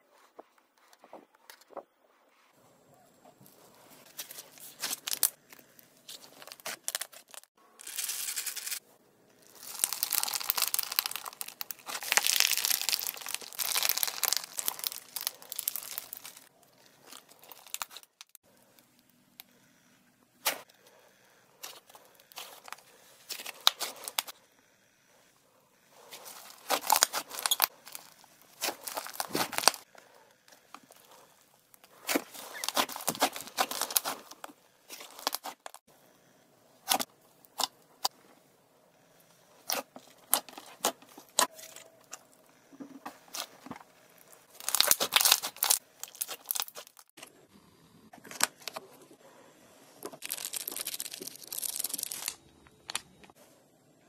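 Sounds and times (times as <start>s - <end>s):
slime crackling and popping: 9.4s - 16.5s, 17.1s - 18.4s, 26.3s - 29.8s, 32.0s - 35.8s, 44.2s - 47.1s, 50.2s - 52.4s.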